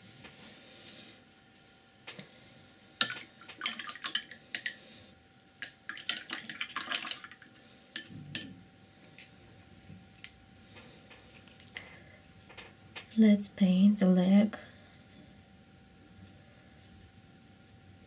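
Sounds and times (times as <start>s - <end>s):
paintbrush rattling in water jar: 3.0s - 4.7s, 5.9s - 8.1s.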